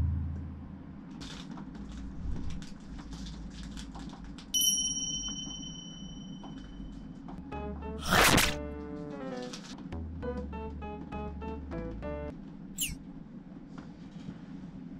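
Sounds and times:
plastic packaging crinkling: 1.2s - 4.6s
bright bell-like ding: 4.6s - 6.5s.

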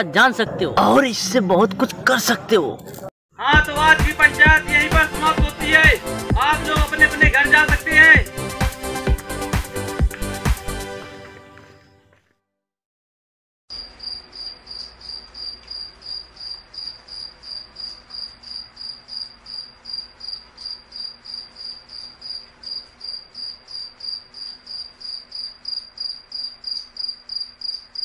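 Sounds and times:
cricket chirping: 13.7s - 28.0s.

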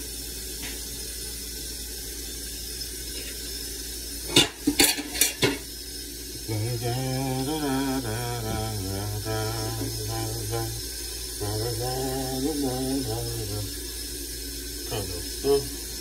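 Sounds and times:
dishes and utensils clattering: 4.3s - 5.7s
person singing wavering melody: 6.5s - 14.0s, 14.8s - 16.0s.

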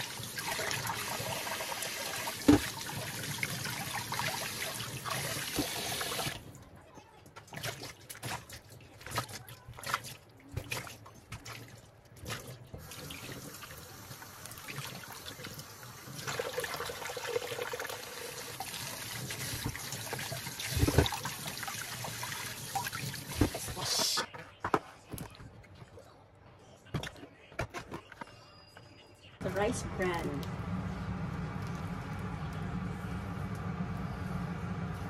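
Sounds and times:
small splashes and drips: 7.4s - 17.9s.

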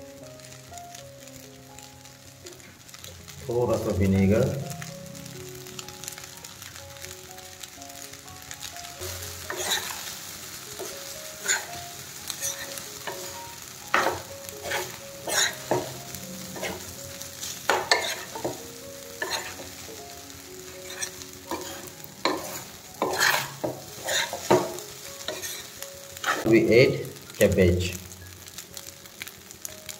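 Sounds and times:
rice sizzling: 0.0s - 29.9s
spatula scraping a pan: 9.0s - 20.0s, 20.8s - 26.5s.

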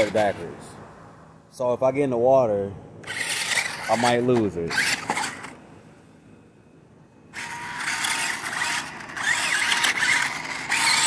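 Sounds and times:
toy truck motor whining: 3.0s - 5.6s, 7.3s - 11.0s.

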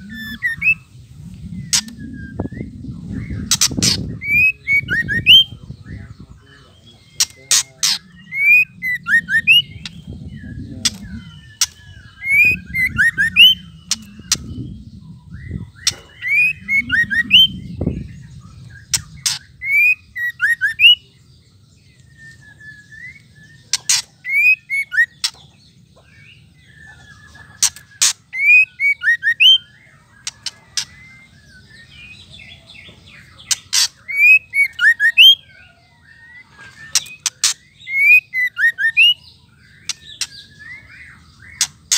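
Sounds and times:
bird clicking and chirping: 3.4s - 4.1s, 23.7s - 25.5s, 27.6s - 29.0s.

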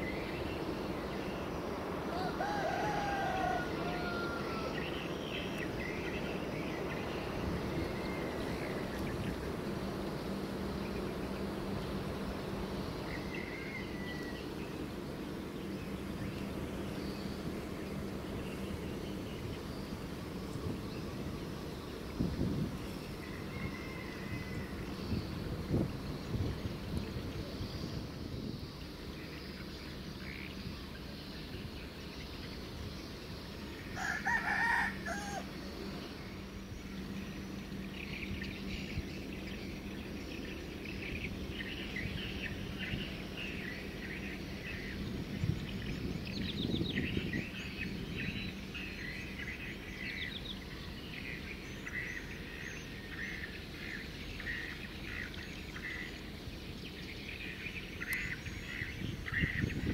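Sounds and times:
ship engine low rumble: 0.0s - 34.0s, 34.9s - 59.9s
small birds chirping: 0.0s - 59.9s
rooster crowing: 2.1s - 5.0s, 23.2s - 24.9s, 33.9s - 35.6s.

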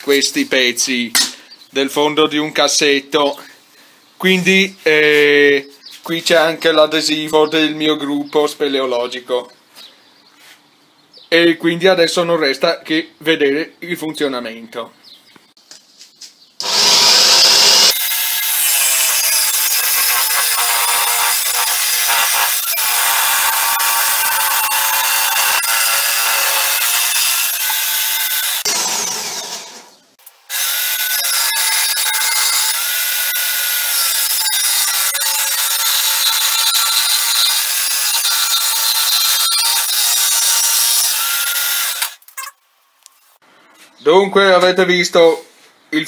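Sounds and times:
jigsaw cutting wood: 16.6s - 42.2s.

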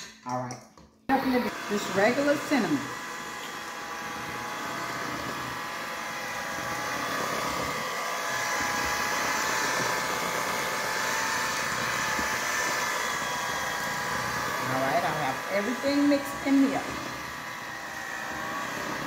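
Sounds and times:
electric hand mixer whine: 1.1s - 19.0s.

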